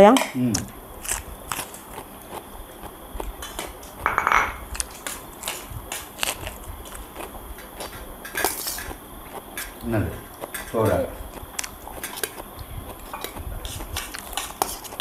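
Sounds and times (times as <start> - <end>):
tableware clinking and scraping: 3.4 - 4.7
ringing clatter of dishes: 4.0 - 4.6.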